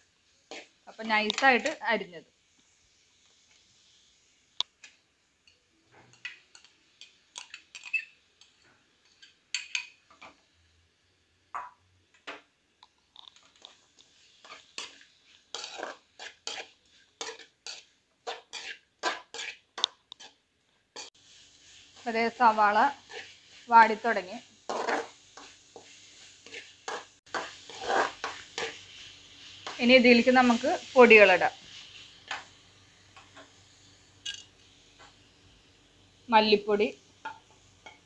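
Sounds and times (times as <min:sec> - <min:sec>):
metal spoon scraping a pan: 0:00.5 - 0:01.8, 0:06.0 - 0:10.4, 0:13.2 - 0:20.4, 0:21.0 - 0:32.5, 0:34.2 - 0:35.1.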